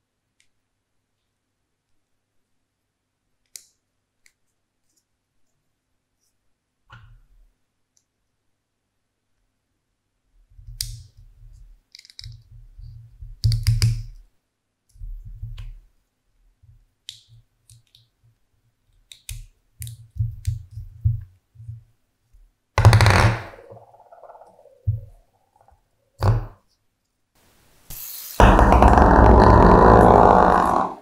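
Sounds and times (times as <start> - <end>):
spinning top scraping on desk: 28.4 - 31.0.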